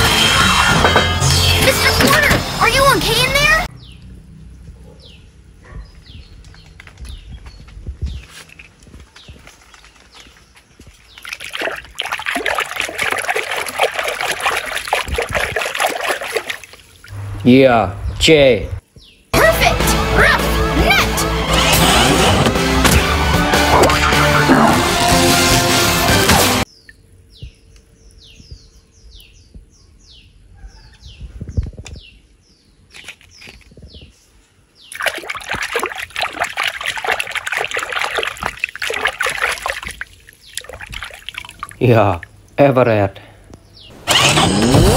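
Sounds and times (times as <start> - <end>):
bird chirping: 3.7 - 11.5, 26.7 - 35.2
water dripping: 10.8 - 17.6, 26.6 - 28.2, 34.9 - 42.8
hand splashing in water: 11.2 - 17.1, 34.9 - 41.8.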